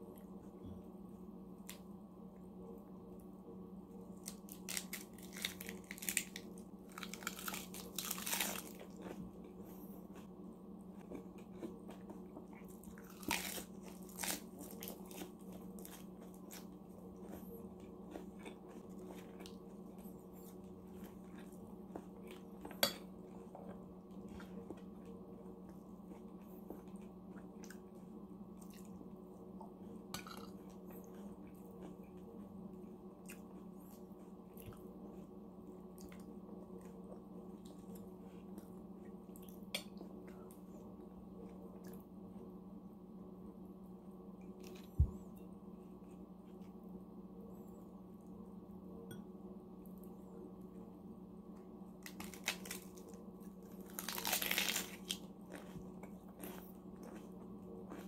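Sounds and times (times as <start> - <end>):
low steady hum: 0.0 - 58.0
lettuce crunching and chewing: 4.1 - 29.0, 51.9 - 58.0.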